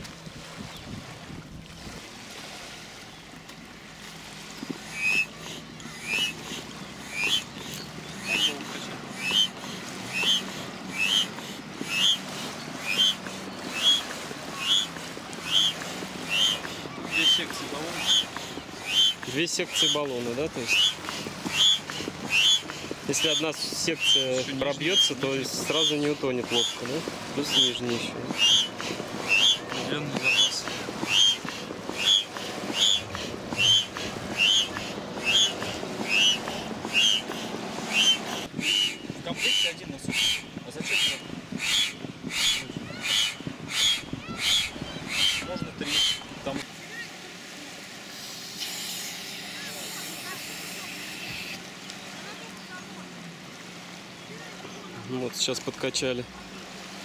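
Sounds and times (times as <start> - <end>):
foot pump squeaky whistle: 4.9 - 5.3, 5.9 - 8.6, 9.2 - 14.9, 15.5 - 20.0, 20.7 - 26.8, 27.4 - 37.3, 37.9 - 46.2.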